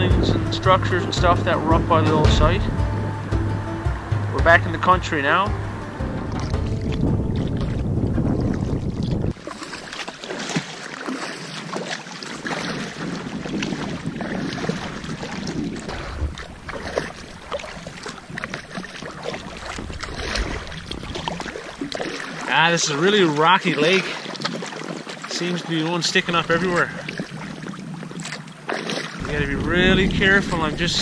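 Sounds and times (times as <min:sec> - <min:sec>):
wind on microphone: 0:00.0 - 0:09.9, 0:12.4 - 0:22.2, 0:26.2 - 0:31.0
paddle strokes splashing: 0:00.0 - 0:31.0
water lapping: 0:00.0 - 0:31.0.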